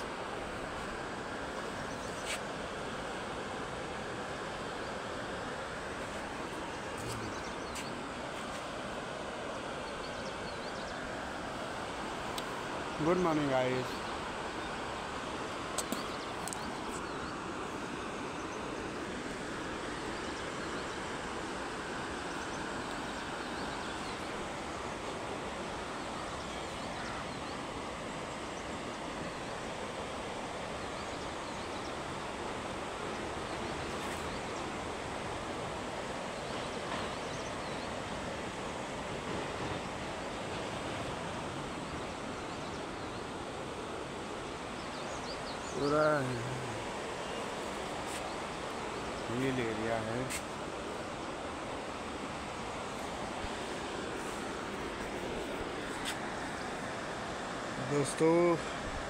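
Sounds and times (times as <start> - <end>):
river rushing: 0.0 - 59.0.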